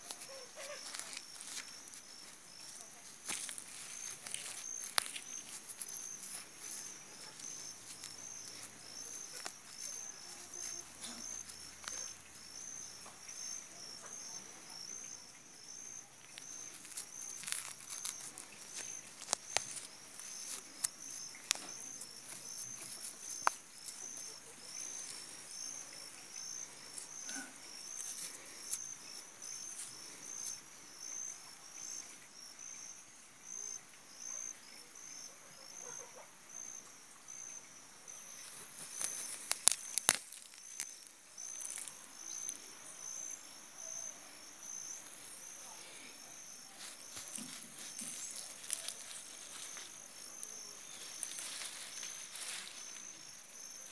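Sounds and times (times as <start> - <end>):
handling rustles: 0.0 - 12.1, 16.3 - 25.6, 26.6 - 29.0, 38.6 - 42.0, 46.7 - 53.2
insect chirping: 0.0 - 53.9.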